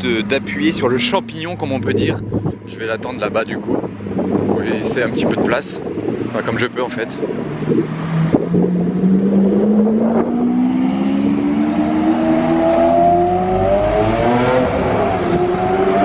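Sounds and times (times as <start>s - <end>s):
sports car engine accelerating: 7.2s - 16.0s.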